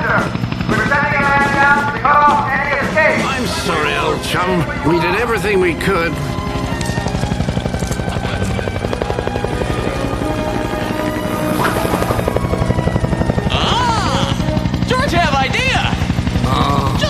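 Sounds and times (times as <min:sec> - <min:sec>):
film score music: 0:00.0 - 0:17.0
helicopter rotor beating: 0:00.0 - 0:17.0.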